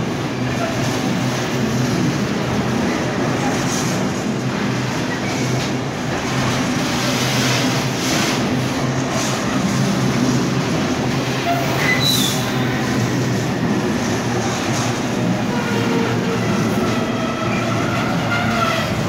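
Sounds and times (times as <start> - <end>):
freight train wheels rumbling on rail: 0.0 - 19.0
high wheel squeal: 11.4 - 12.6.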